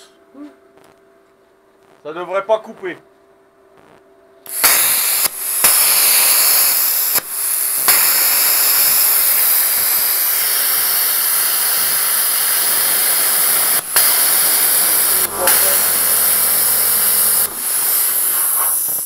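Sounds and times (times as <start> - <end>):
plasma cutter arc hissing: 4.5 - 19.0.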